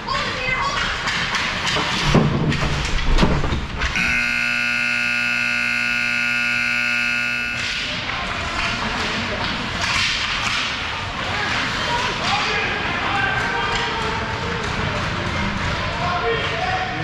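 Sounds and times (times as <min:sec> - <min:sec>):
ice rink horn: 0:04.0 - 0:07.9.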